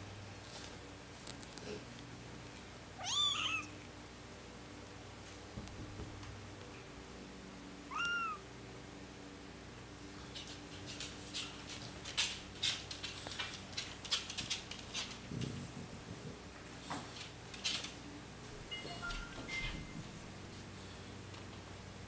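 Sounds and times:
kitten mewing: 3.0 - 3.8, 7.9 - 8.5
rustling and scratching on cloth: 10.1 - 18.1.

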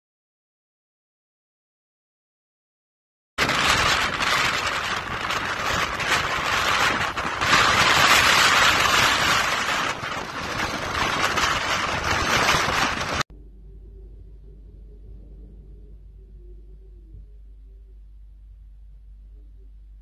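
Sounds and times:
gale-force wind on microphone: 3.4 - 13.3
rough sea breaking: 3.4 - 13.3.

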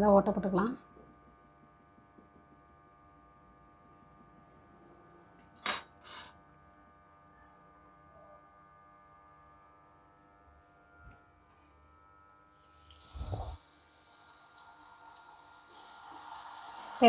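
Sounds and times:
faint steady hum: 0.0 - 17.0
metal fork clinking on stone: 5.4 - 6.3.

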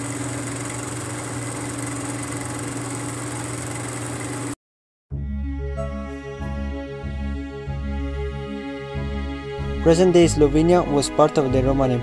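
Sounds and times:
film projector whirring: 0.0 - 4.6
music: 5.1 - 12.0.

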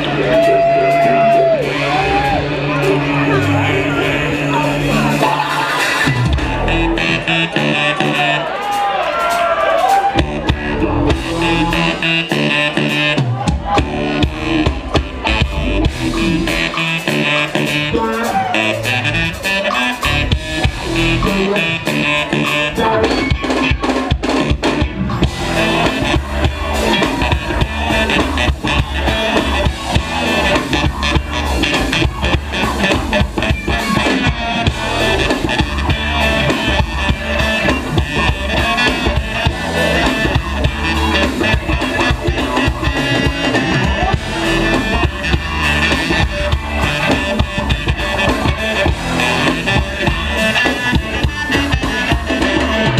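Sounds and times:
bass: 0.0 - 52.9
drum kit: 0.0 - 52.9
electric guitar: 0.0 - 52.9.

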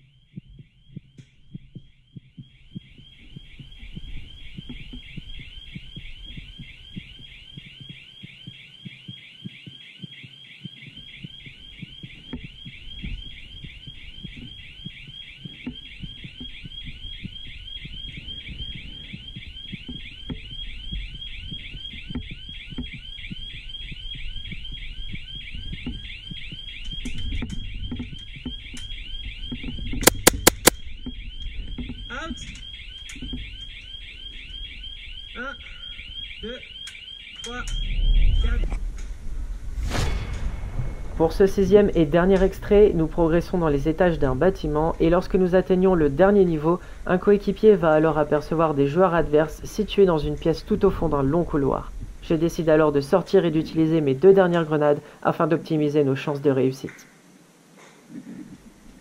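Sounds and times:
electronic alarm chirping: 0.0 - 38.9
footsteps on stairs: 0.3 - 21.0.

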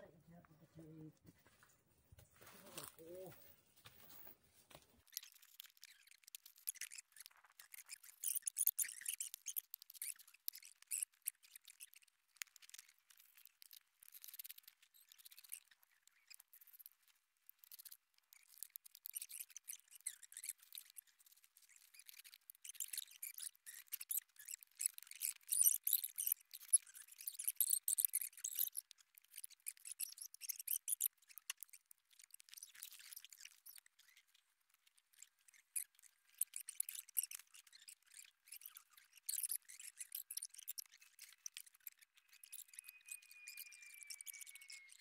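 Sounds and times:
dry crackling and rustling: 0.4 - 25.0.

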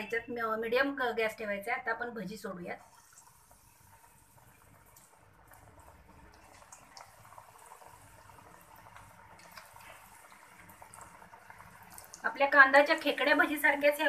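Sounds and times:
fritters sizzling in oil: 2.3 - 14.0.

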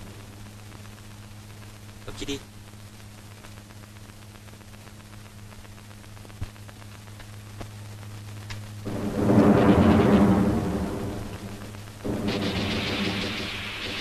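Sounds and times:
faint rain: 0.0 - 14.0
steady low hum: 0.0 - 14.0
rolling thunderclap: 8.8 - 14.0.

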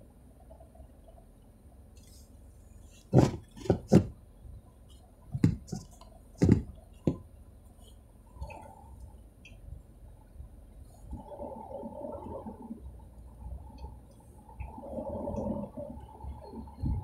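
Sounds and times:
low steady rumble: 0.0 - 17.0
sharp knocks and thuds: 3.1 - 4.2, 5.3 - 7.3.

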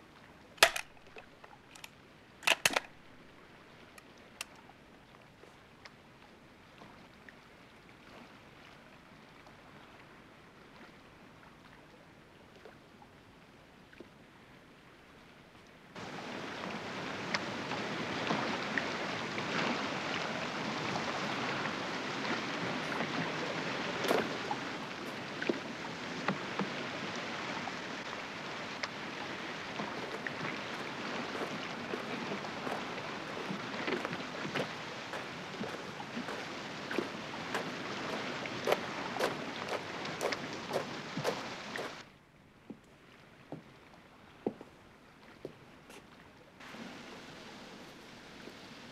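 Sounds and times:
water at shoreline: 0.0 - 48.9
wind: 0.0 - 48.9
oar clicks: 0.6 - 3.0.

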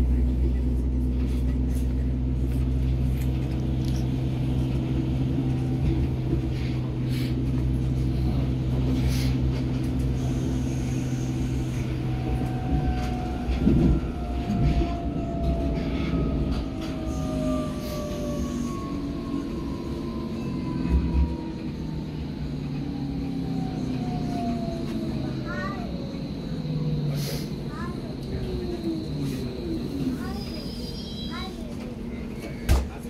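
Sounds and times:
train running gear rumble: 0.0 - 33.0
traction motor whine: 9.5 - 30.9.

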